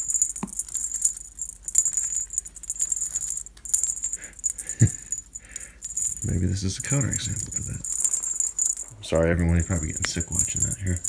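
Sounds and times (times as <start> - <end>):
cat wand toy rattling: 0.0 - 11.0.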